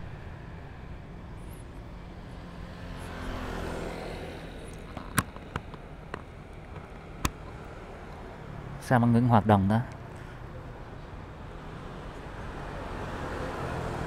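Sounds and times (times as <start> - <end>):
traffic rumble: 0.0 - 14.0
vehicle passing: 0.0 - 14.0
sharp clicks: 4.7 - 8.2.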